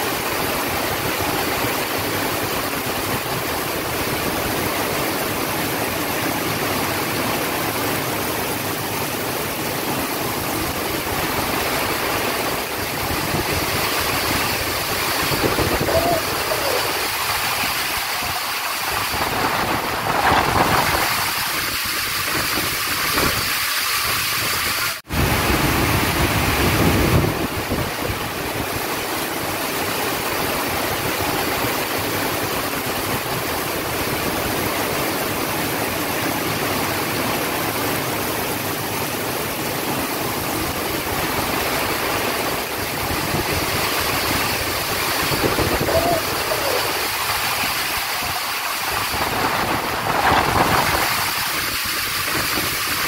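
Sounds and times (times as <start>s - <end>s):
heavy rain splashing: 0.0s - 53.0s
gusty wind: 8.7s - 35.0s, 38.7s - 53.0s.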